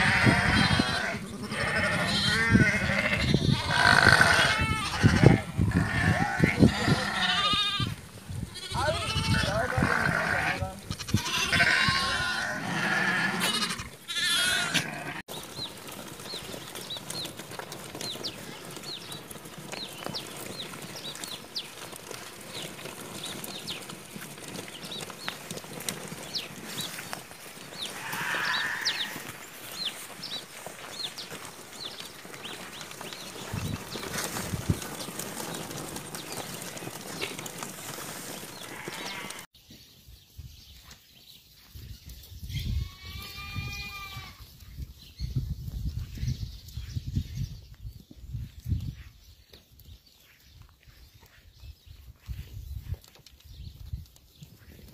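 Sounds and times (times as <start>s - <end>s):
sheep and lambs bleating: 0.0s - 15.3s, 27.8s - 29.4s, 38.5s - 39.5s, 42.5s - 44.5s.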